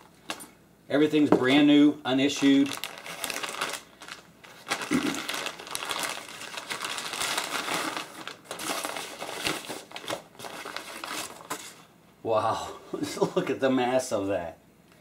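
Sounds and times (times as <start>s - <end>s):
plastic bag crinkling and rustling: 2.2s - 11.8s.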